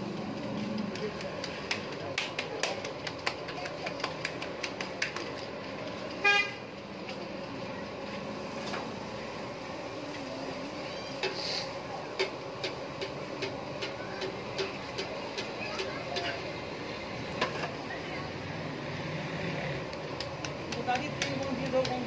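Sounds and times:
street background noise: 0.0s - 22.0s
scattered clicks and knocks: 0.4s - 6.2s, 12.1s - 16.4s, 19.9s - 22.0s
vehicle horn toot: 6.2s - 6.6s.

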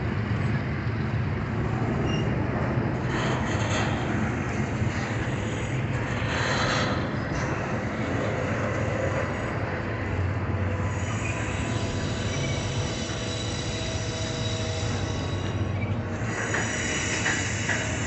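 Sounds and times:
wheels rumbling on rail: 0.0s - 18.0s
thin wheel squeal: 2.0s - 2.4s, 10.6s - 18.0s.

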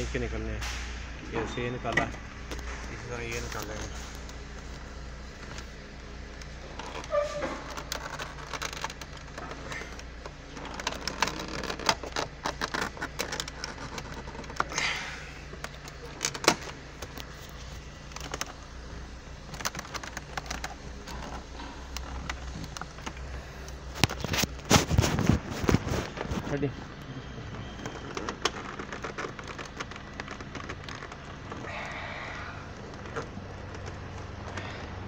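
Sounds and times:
low steady hum: 0.0s - 35.0s
plastic trim clicking: 6.4s - 14.8s.

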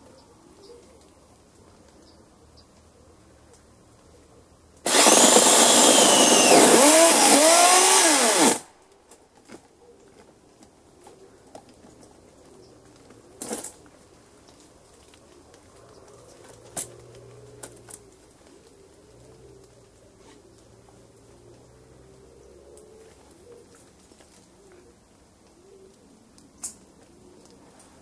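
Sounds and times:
electric chainsaw running: 4.9s - 8.7s.

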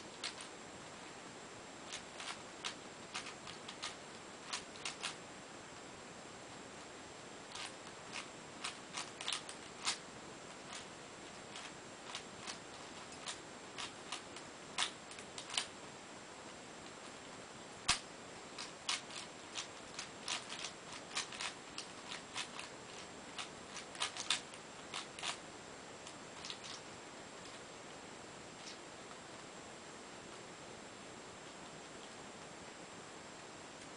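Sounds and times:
plastic puzzle layers clicking: 1.9s - 5.2s, 23.4s - 25.4s.

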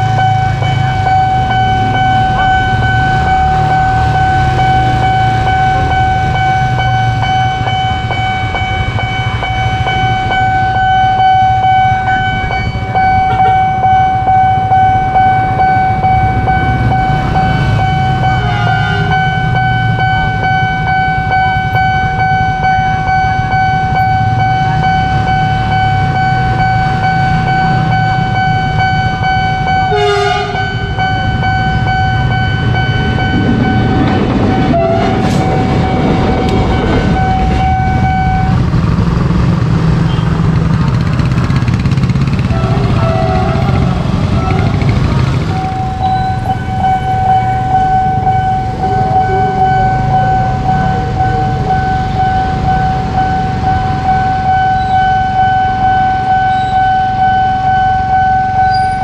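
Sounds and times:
level crossing alarm tone: 0.0s - 59.0s
locomotive engine rumble: 0.0s - 59.0s
train horn blasts: 13.2s - 13.9s, 18.2s - 19.6s, 29.9s - 31.1s, 34.6s - 35.9s, 42.4s - 45.6s.

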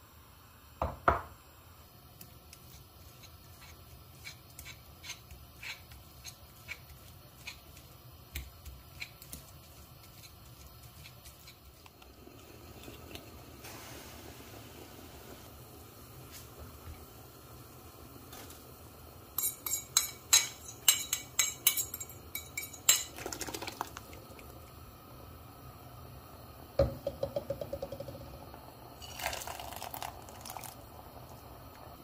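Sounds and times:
soft steady hiss: 0.0s - 32.0s
forks clicking on glass bowl: 19.4s - 23.1s.

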